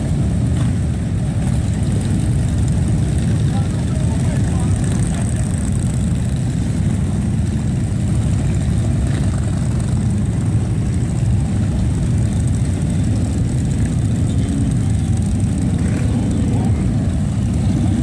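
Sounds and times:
motorcycle engines rumbling: 0.0 - 18.0.

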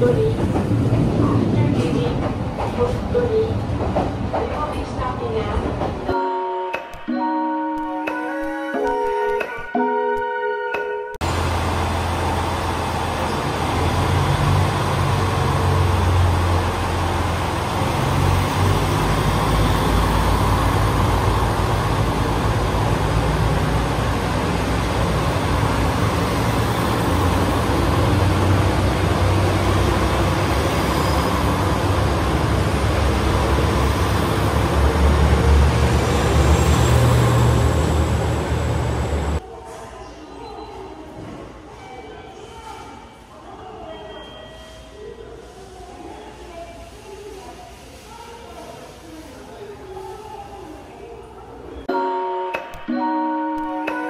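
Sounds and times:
train wheel and rail noise: 0.0 - 7.2, 11.2 - 54.0
diesel engine drone: 11.2 - 39.4.

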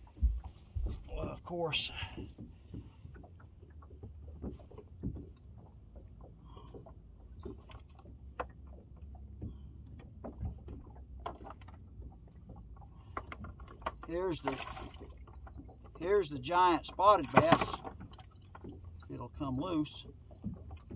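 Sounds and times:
knocks and clatter from tank: 16.9 - 19.0.

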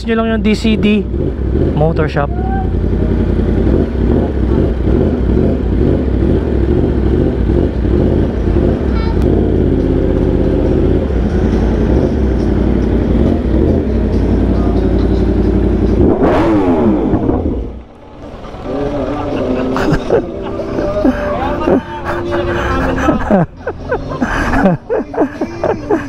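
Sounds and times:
motorcycle engine running: 0.0 - 24.8.

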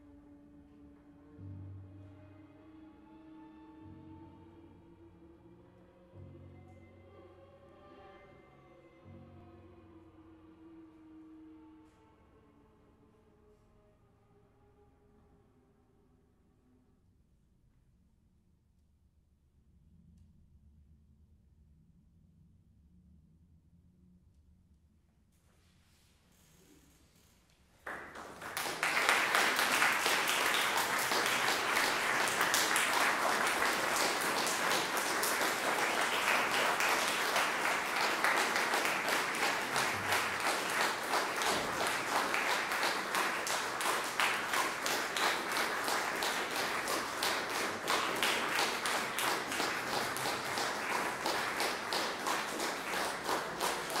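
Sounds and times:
audience applauding: 27.8 - 54.0.

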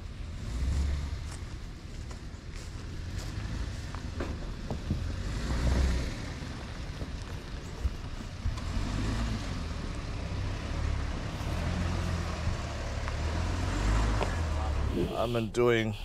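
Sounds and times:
tyres over dirt and stones: 0.0 - 10.0
truck engine pulling at low speed: 0.0 - 16.0.

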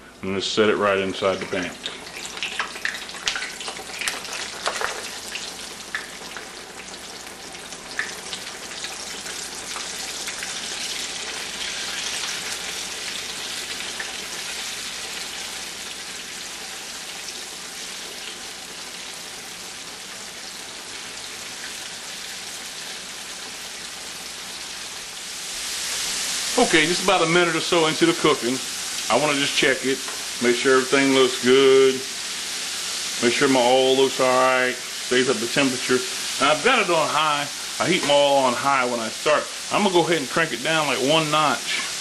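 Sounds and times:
chicken sizzling in hot oil: 1.2 - 42.0
oil popping and crackling: 1.3 - 19.0.

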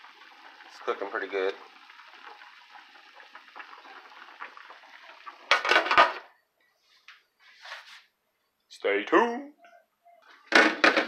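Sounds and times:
meat simmering in a pan: 0.0 - 6.3.

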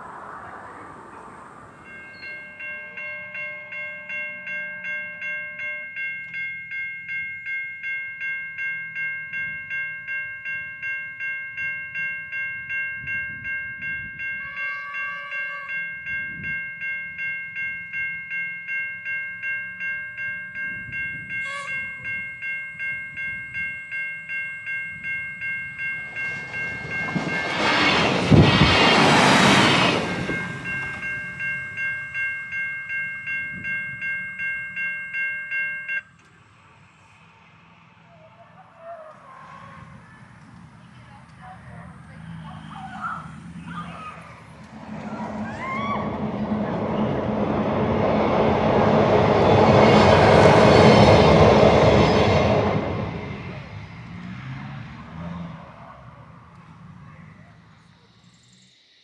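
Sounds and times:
level crossing warning bells: 0.0 - 38.8, 39.4 - 58.8
diesel railcar passing: 0.0 - 59.0
train horn: 2.8 - 4.8, 14.3 - 15.9, 21.4 - 22.0.

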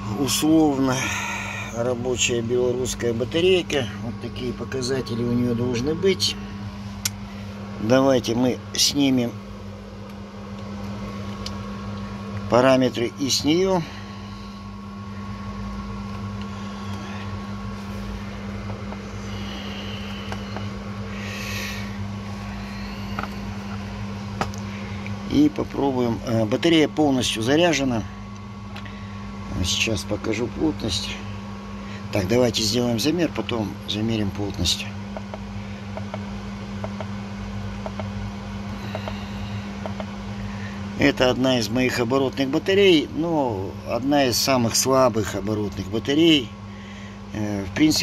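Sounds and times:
low electrical hum: 0.0 - 48.0.

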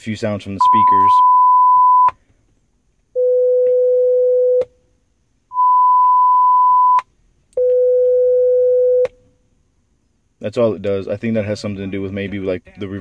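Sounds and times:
steady test tone beeps: 0.6 - 2.2, 5.5 - 9.1.

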